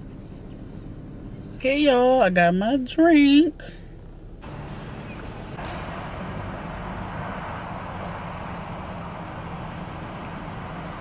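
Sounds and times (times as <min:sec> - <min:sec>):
car engine hum: 0:00.0 - 0:11.0
rushing road hiss: 0:04.4 - 0:11.0.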